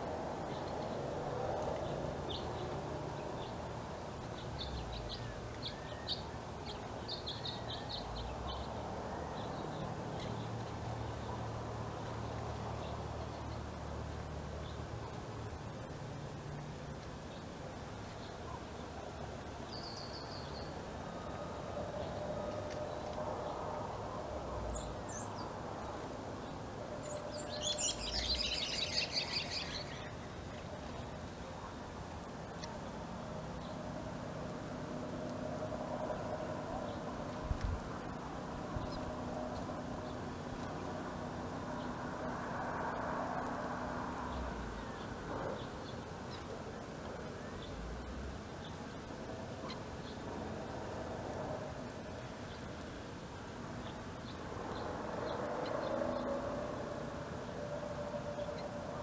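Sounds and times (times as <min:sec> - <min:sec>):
finches chirping: 0:26.4 - 0:31.0.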